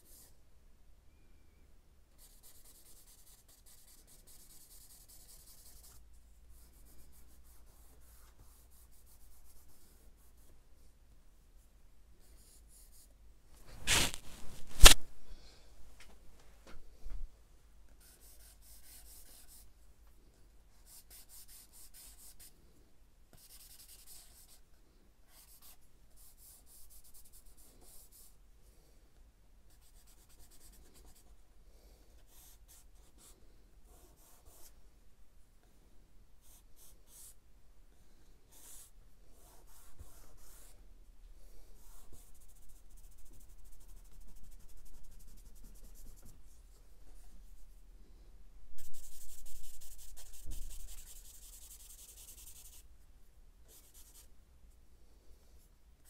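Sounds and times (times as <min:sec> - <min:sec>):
charcoal scratching on paper: 0:13.7 - 0:15.0, 0:18.0 - 0:19.7, 0:23.4 - 0:24.6, 0:41.8 - 0:46.2, 0:48.8 - 0:52.8.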